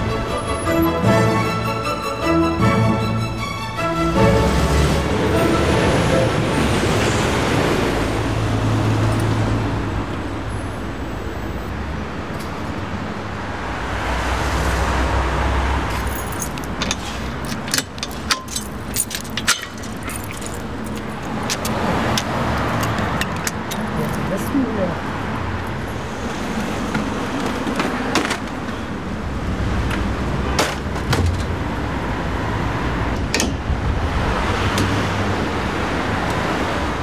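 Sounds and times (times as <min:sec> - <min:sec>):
passing cars and trucks rumbling: 0:00.0 - 0:37.0
keys jingling: 0:15.9 - 0:24.5.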